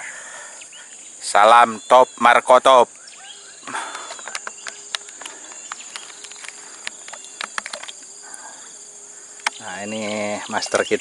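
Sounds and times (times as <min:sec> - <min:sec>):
insects buzzing: 0:00.0 - 0:11.0
sharp insect ticks: 0:00.0 - 0:11.0.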